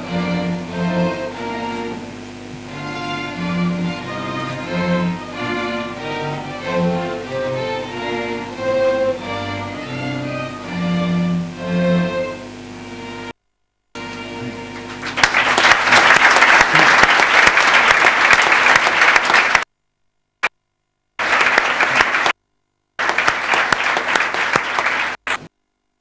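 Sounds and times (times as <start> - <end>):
string ensemble chord: 0.0 - 13.3, 14.0 - 15.8
crowd clapping: 14.0 - 19.7, 21.2 - 22.4, 23.0 - 25.5.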